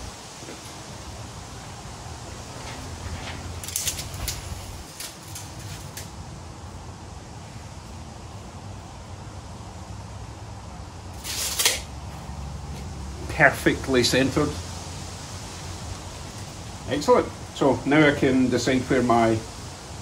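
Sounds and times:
steady low hum: 0.0s - 20.0s
tape measure blade retracting: 3.4s - 6.1s, 11.1s - 11.9s
tape measure clicks: 11.2s - 11.9s.

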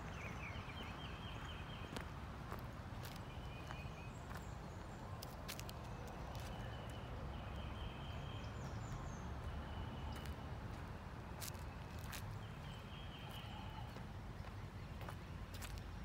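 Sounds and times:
faint high bird calls: 11.4s - 15.8s.

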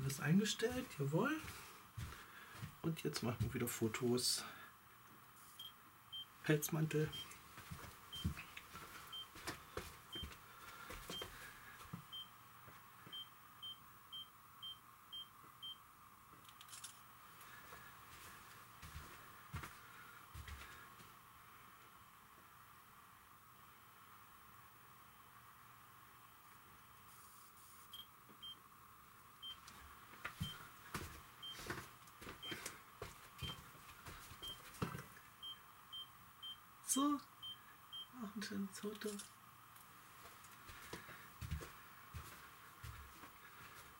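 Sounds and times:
footsteps: 0.0s - 3.6s, 7.5s - 12.0s, 17.4s - 21.1s, 29.8s - 35.1s, 40.2s - 43.9s.

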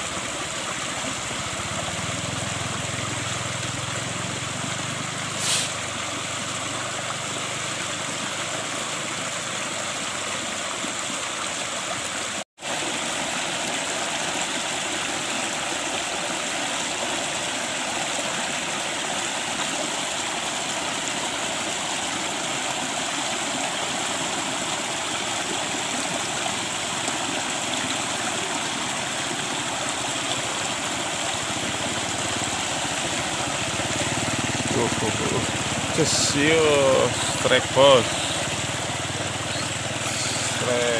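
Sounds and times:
water rushing and splashing: 0.0s - 40.9s.

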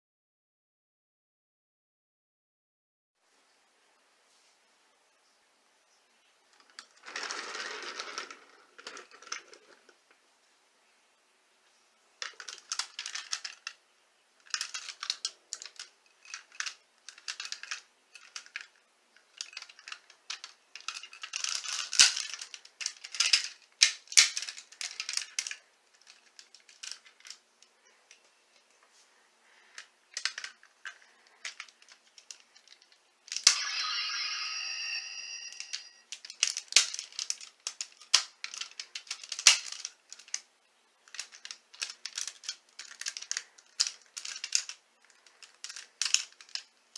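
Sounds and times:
plastic toy parts clicking: 6.5s - 10.0s, 12.2s - 13.8s, 14.4s - 27.4s, 29.7s - 33.6s, 35.5s - 46.9s.

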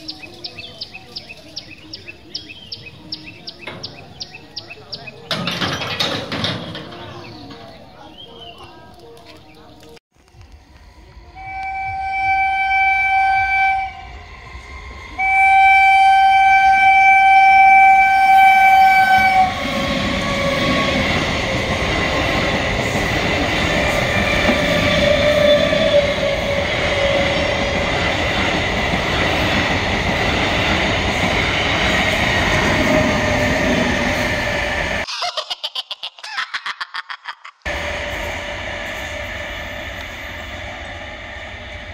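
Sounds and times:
coaches rattling: 3.2s - 10.0s
wheels rushing on rails: 10.2s - 35.1s, 37.7s - 41.9s
train horn: 11.2s - 14.2s, 15.1s - 20.6s.

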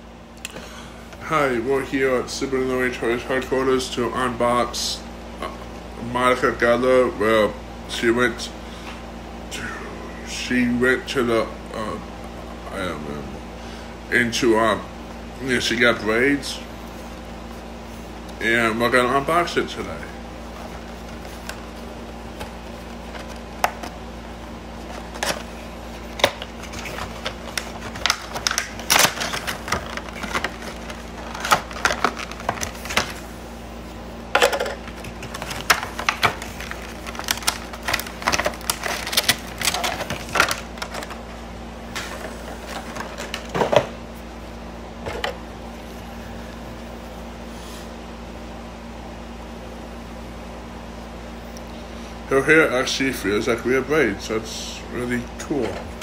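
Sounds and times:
steady low hum: 0.0s - 56.0s
cardboard box and plastic handled: 24.8s - 33.2s, 34.8s - 41.2s.

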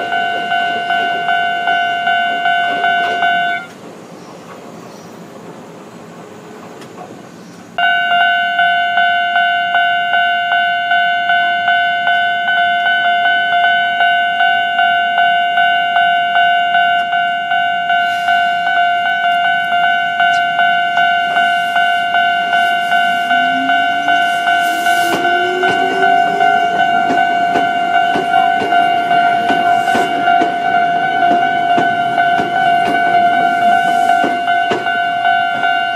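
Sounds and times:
level crossing warning bell: 0.0s - 3.8s, 7.8s - 35.9s
train motor: 20.3s - 35.7s.

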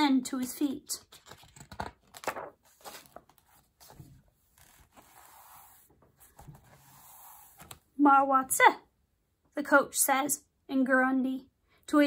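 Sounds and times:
paper page rustling and scraping: 1.0s - 7.8s.

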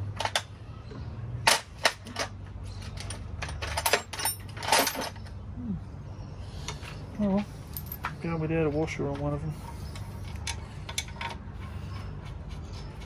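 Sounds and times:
metal bolts and washers clinking: 1.4s - 5.4s, 7.7s - 8.2s.

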